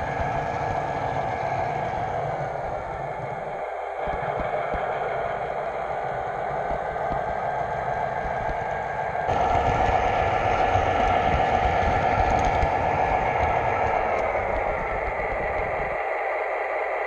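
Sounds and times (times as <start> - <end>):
model train wheels rolling: 0.0 - 16.8
model train motor hum: 0.0 - 17.0.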